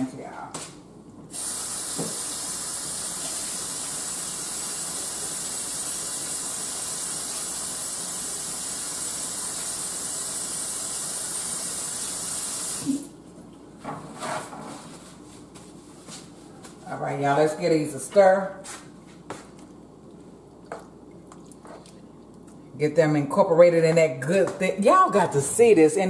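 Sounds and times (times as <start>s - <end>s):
faucet running: 1.3s - 13.1s
hands washing under water: 18.7s - 22.7s.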